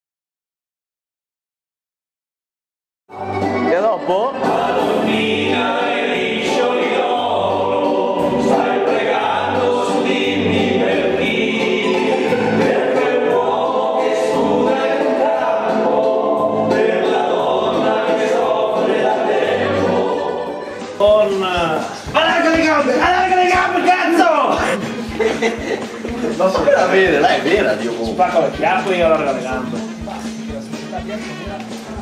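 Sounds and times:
choir singing: 0:03.2 - 0:22.2.

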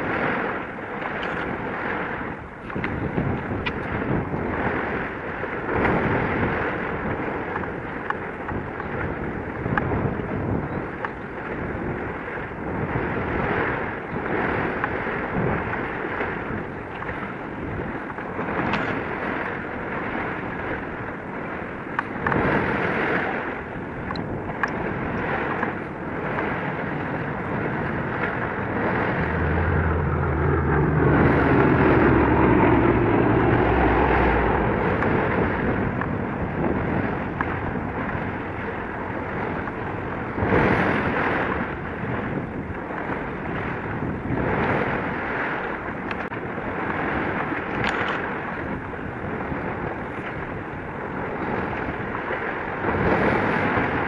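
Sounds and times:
sea and harbour rumble: 0:00.0 - 0:54.0
wind buffeting microphone: 0:00.0 - 0:54.0
low engine drone: 0:24.0 - 0:42.1.

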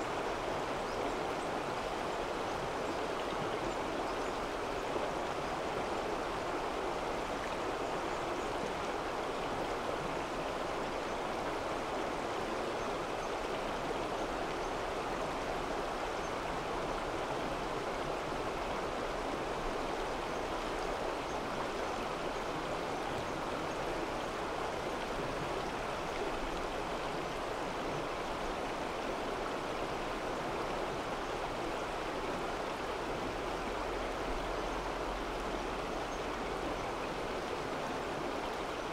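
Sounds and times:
rushing stream: 0:00.0 - 0:38.9.

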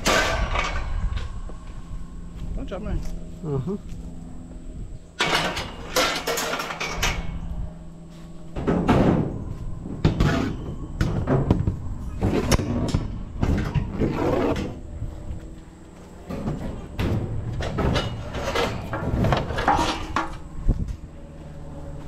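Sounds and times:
wire shelving rattling and scraping: 0:05.2 - 0:07.5, 0:16.2 - 0:21.0.

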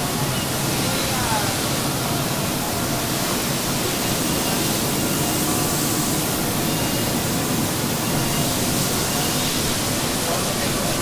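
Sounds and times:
faint high whines: 0:02.0 - 0:10.1.

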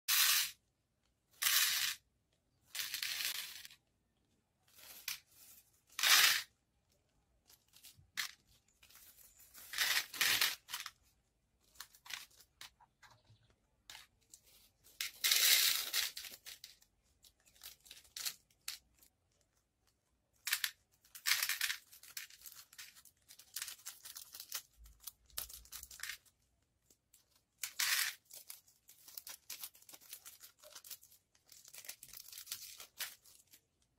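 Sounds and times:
beads rattling into plastic box: 0:01.4 - 0:02.0, 0:02.7 - 0:03.8, 0:07.8 - 0:11.0
plastic bags tearing and crinkling: 0:21.0 - 0:26.3, 0:27.7 - 0:33.6.

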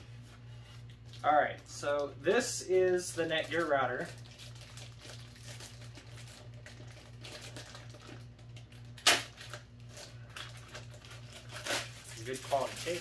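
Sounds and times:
plastic bag crinkling: 0:02.7 - 0:13.0
tape ripping: 0:04.3 - 0:13.0.

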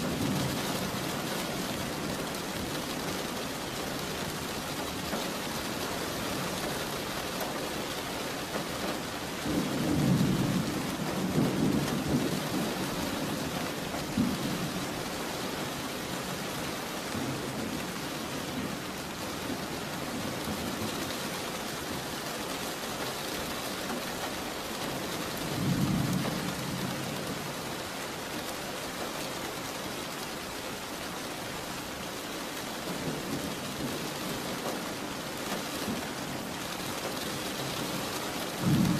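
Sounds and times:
steady rain: 0:00.0 - 0:38.9
thunder rumbling: 0:37.8 - 0:38.9.

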